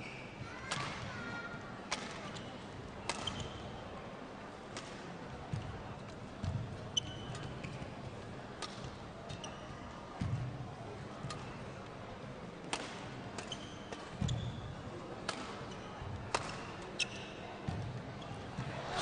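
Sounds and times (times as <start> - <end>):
shoes squeaking on court: 7.0 - 7.9, 17.0 - 17.4
rackets striking shuttlecock: 12.7 - 14.4, 16.3 - 16.7.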